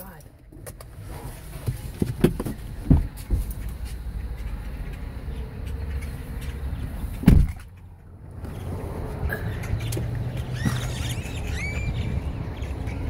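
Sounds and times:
car rumble from inside cabin: 0.0 - 13.0.

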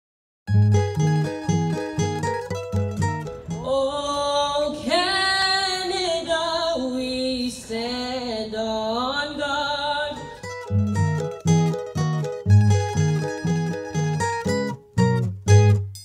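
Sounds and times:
woman singing unaccompanied: 3.4 - 10.6.

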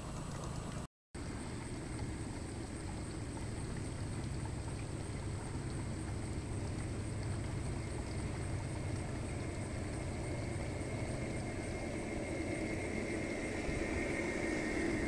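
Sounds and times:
model train running hum: 0.0 - 15.0.

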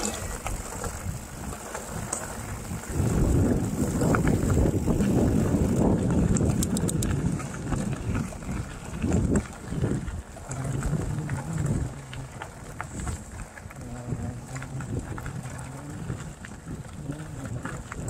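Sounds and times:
bike clicks and rattles: 0.0 - 18.0
bike tyres crunching on gravel: 0.0 - 18.0
wind rumbling on microphone: 0.0 - 18.0.

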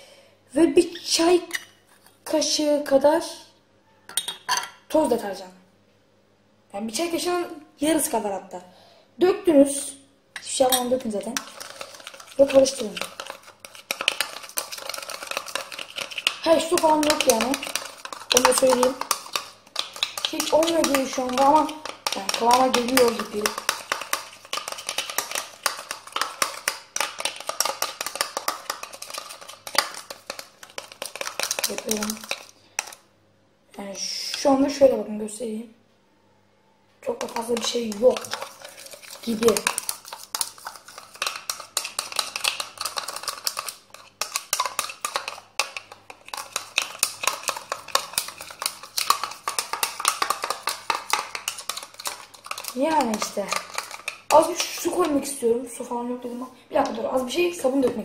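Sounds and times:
teaspoon stirring in a bowl: 10.4 - 33.0, 37.0 - 55.6.

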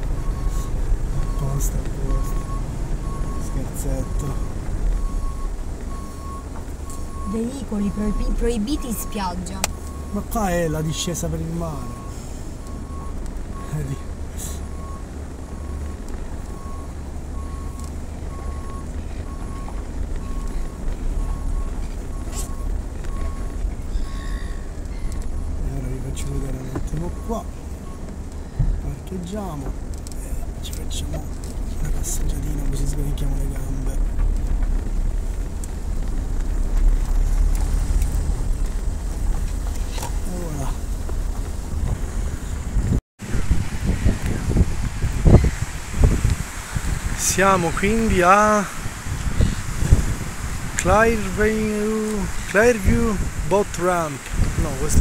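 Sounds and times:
reverse warning beeps: 0.0 - 28.1
engine and road rumble: 0.0 - 55.0.

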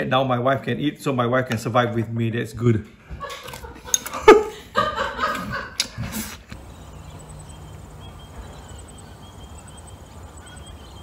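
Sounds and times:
man laughing: 3.1 - 5.9
low steady hum: 6.5 - 11.0
faint high chirps: 6.6 - 11.0.

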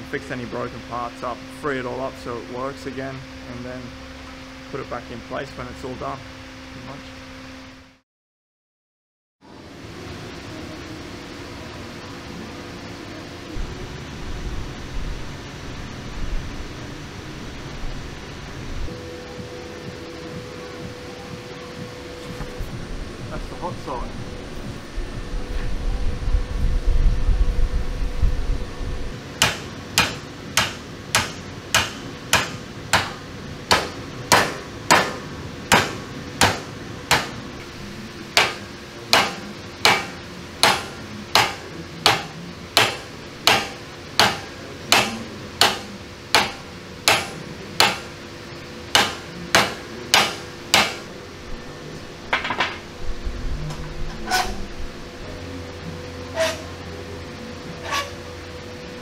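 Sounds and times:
low rumble: 13.6 - 29.4, 51.3 - 56.2
hammer striking steel: 29.4 - 37.4, 38.4 - 48.1, 48.9 - 51.1.

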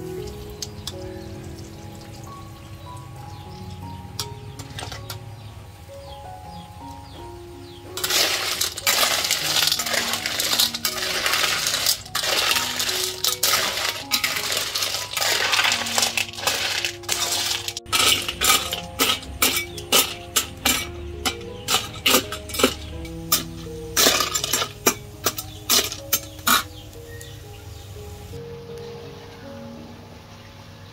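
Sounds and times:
shells clattering in a steel wok: 4.2 - 5.2, 8.0 - 26.8.

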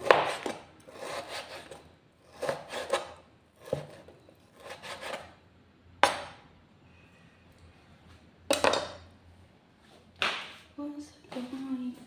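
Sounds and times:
knife slicing meat on cutting board: 0.0 - 4.0.

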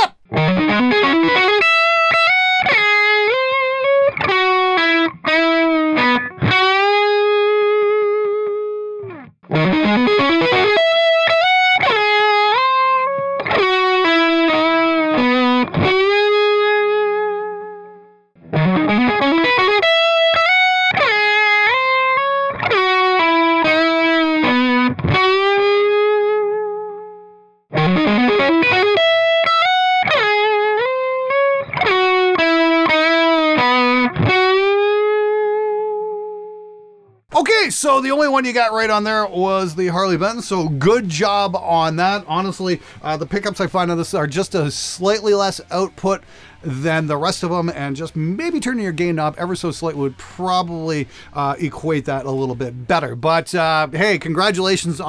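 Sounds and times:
overdriven electric guitar: 0.0 - 37.3.

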